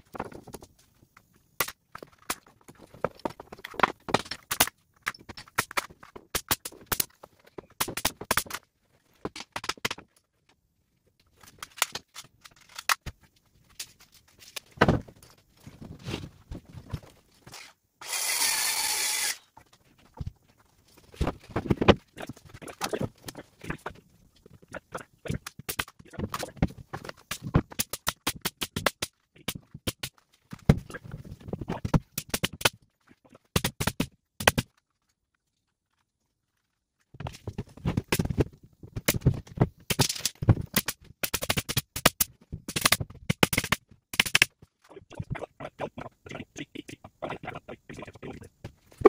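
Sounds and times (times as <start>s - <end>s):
pneumatic nailer firing: 18.0s - 19.4s.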